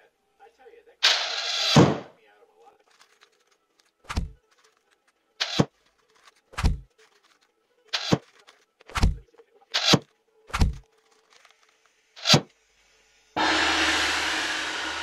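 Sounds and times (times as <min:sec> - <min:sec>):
pins thunking through fabric: 0:02.9 - 0:07.4.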